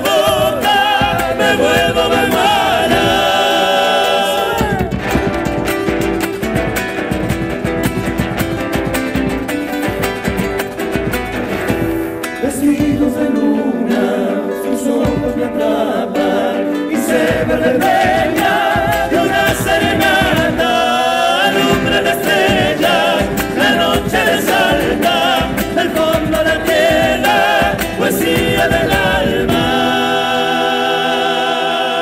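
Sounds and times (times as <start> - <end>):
group singing: 0.0 - 8.2, 9.6 - 32.0
bass drum: 0.0 - 13.4, 15.1 - 15.6, 17.1 - 30.2
strummed acoustic guitars: 0.0 - 32.0.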